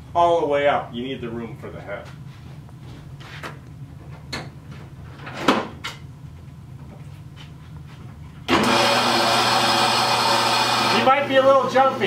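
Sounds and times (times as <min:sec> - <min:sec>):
bandsaw motor running: 0:08.5 - 0:12.0.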